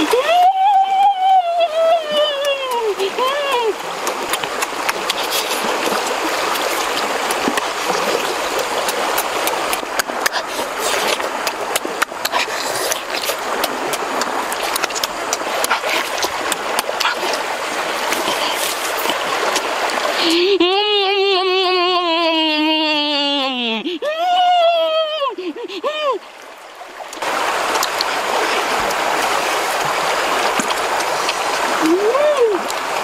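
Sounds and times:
river flowing over rocks: 0:00.0 - 0:20.4, 0:25.8 - 0:33.0
meat being bitten and chewed: 0:10.0 - 0:13.8.

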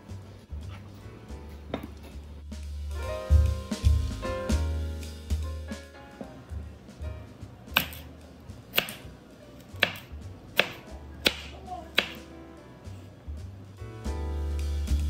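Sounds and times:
knife slicing carrot on board: 0:07.8 - 0:08.1, 0:08.8 - 0:09.0, 0:09.8 - 0:12.3.

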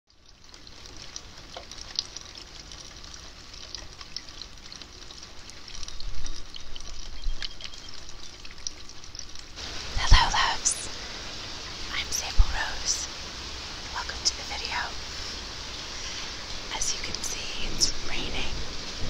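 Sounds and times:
raindrops ticking: 0:00.1 - 0:19.0
steady rain hiss: 0:00.1 - 0:19.0.

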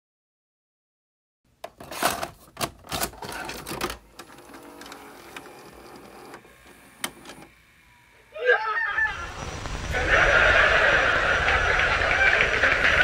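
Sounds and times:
vcr mechanism clicks and clunks: 0:01.6 - 0:07.5
tape mechanism whirring: 0:01.6 - 0:08.3.

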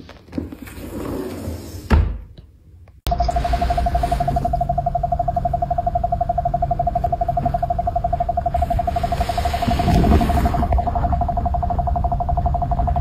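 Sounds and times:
rapidly pulsing tone: 0:03.1 - 0:13.0.

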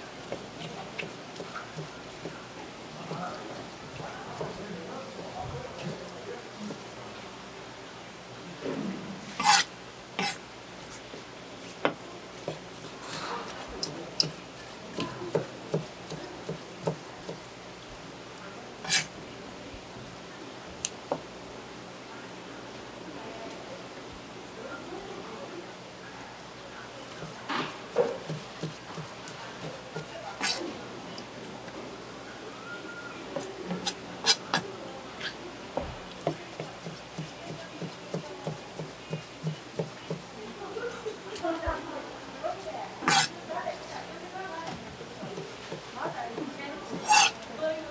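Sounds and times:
knife chopping on cutting board: 0:15.0 - 0:17.4, 0:28.0 - 0:30.6, 0:36.2 - 0:40.2.

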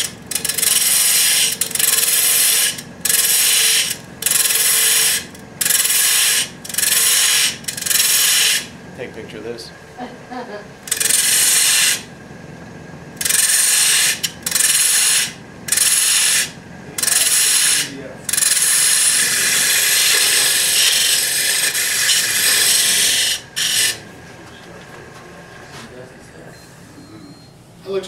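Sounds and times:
lathe tool cutting wood: 0:00.0 - 0:08.8, 0:10.8 - 0:12.2, 0:13.1 - 0:24.3
lathe running: 0:00.0 - 0:26.4.

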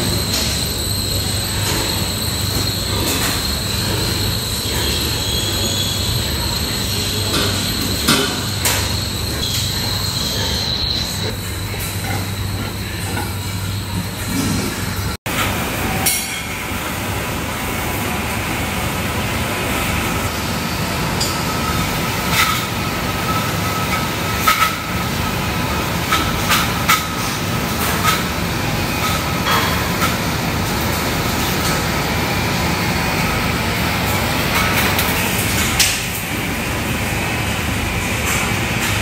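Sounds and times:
barn rumble and hiss: 0:01.6 - 0:15.0.

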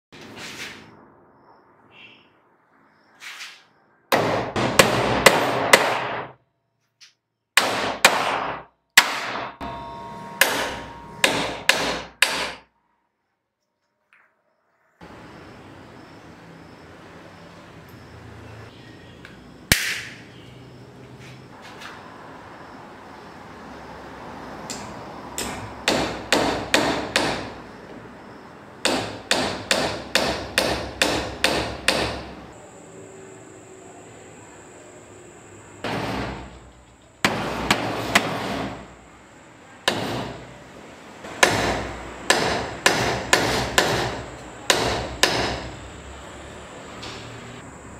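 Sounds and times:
hammer driving nail into wood: 0:04.1 - 0:06.3, 0:07.6 - 0:09.6, 0:10.4 - 0:12.6, 0:25.4 - 0:27.5, 0:28.8 - 0:32.2, 0:37.2 - 0:38.8, 0:39.9 - 0:40.4, 0:41.4 - 0:45.6
hammer driving nail into board: 0:41.4 - 0:45.6.

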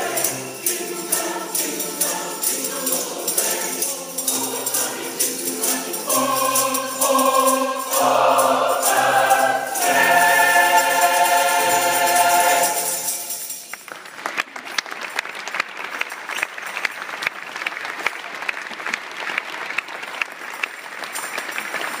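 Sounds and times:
choir singing: 0:00.0 - 0:13.6
audience applause: 0:13.7 - 0:22.0.

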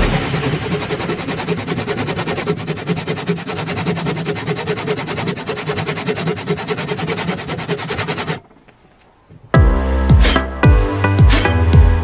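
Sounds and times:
hand saw cutting wood: 0:00.0 - 0:08.6.

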